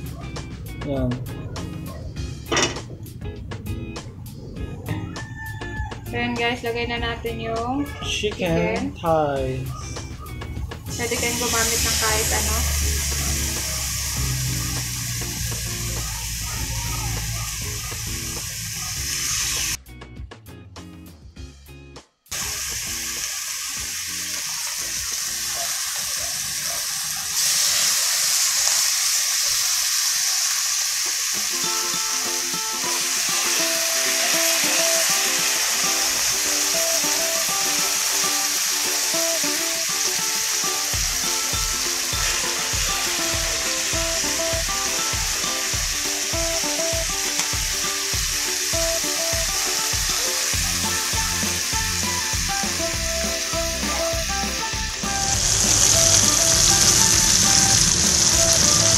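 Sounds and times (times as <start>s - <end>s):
background music with beat: 0.0s - 25.3s, 31.3s - 58.9s
chicken sizzling in a pan: 10.9s - 19.8s, 22.3s - 58.9s.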